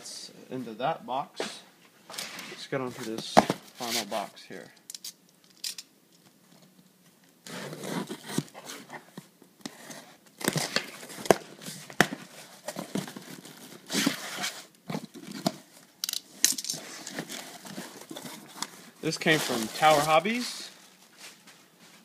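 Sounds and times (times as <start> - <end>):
packing tape tearing: 9.7 - 20.4
cardboard flaps rustling: 16.8 - 22.0.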